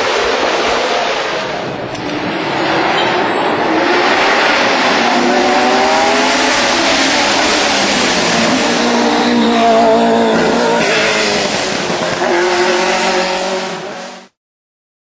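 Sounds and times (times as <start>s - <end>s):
race car engine revving hard: 0.0s - 14.4s.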